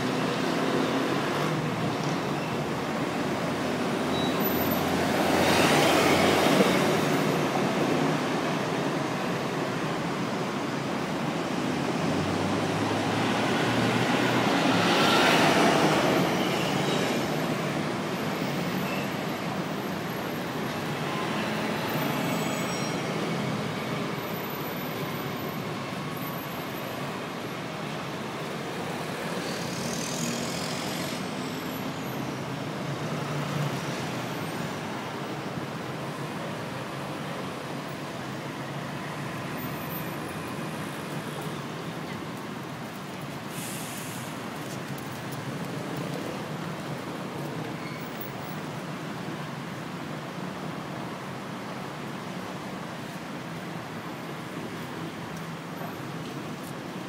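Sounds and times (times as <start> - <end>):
dense road traffic: 0.0 - 57.0.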